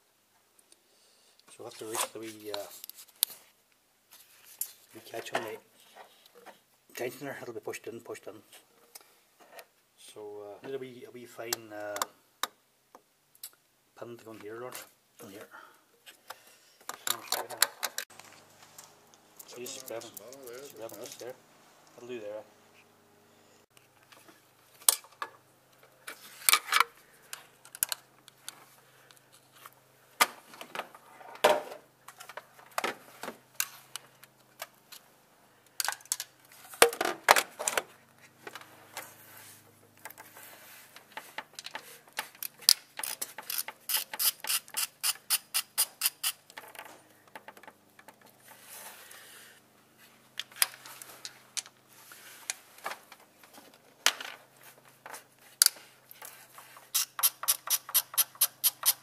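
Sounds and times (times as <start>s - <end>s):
socket ratchet clicking: 43.0s - 46.4s, 56.9s - 59.0s.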